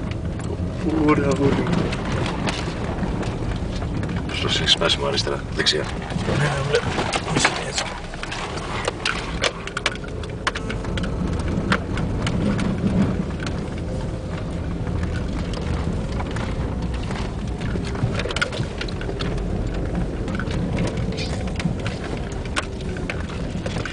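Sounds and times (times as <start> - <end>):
car engine and tyres rumbling: 0.0 - 23.9
gravel clicking against car: 0.0 - 23.9.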